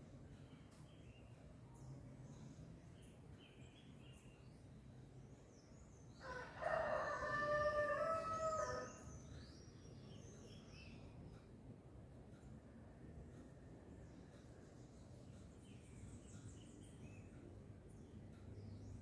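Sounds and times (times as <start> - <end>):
small birds chirping faintly: 0.0 - 19.0
rooster crowing: 6.2 - 9.0.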